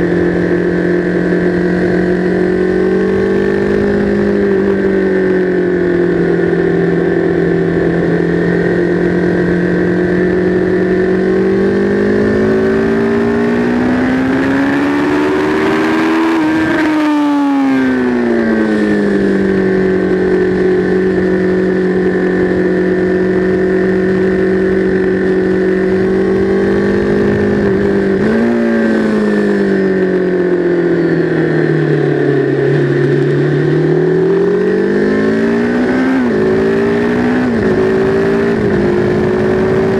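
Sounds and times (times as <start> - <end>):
motorcycle engine revving: 0.0 - 39.9
wind rush: 34.0 - 39.9.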